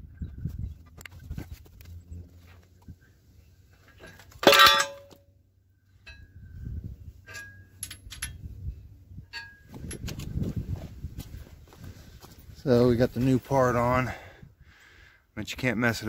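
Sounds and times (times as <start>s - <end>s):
steel tools clinking: 4.0s - 5.2s, 7.2s - 8.4s, 9.3s - 10.1s
loud metal clang: 4.4s - 5.2s.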